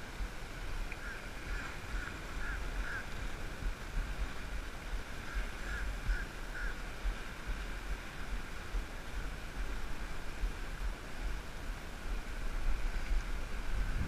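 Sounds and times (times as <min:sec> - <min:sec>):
wind buffeting microphone: 0:00.0 - 0:14.0
short honk-like calls: 0:01.0 - 0:03.1, 0:05.3 - 0:06.8.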